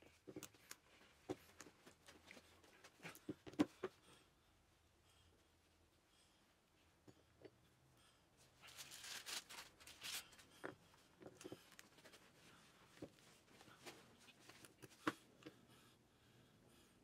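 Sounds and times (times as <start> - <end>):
gloved hands rustling: 8.6 - 15.2.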